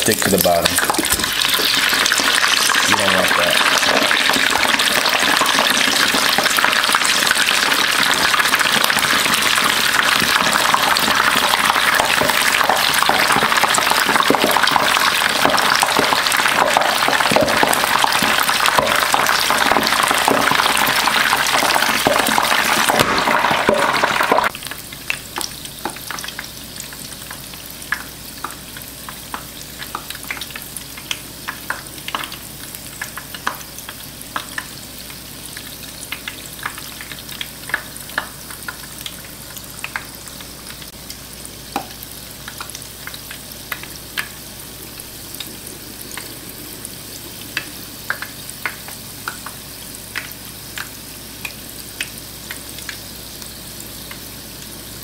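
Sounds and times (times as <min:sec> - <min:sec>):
dough bubbling in deep fryer: 0:00.0 - 0:55.0
oil popping and crackling: 0:00.0 - 0:55.0.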